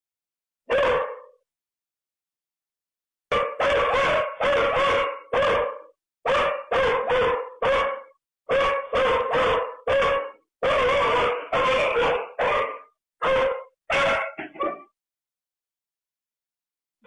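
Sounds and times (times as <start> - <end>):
dog barking: 0.7 - 1.4, 3.3 - 15.0.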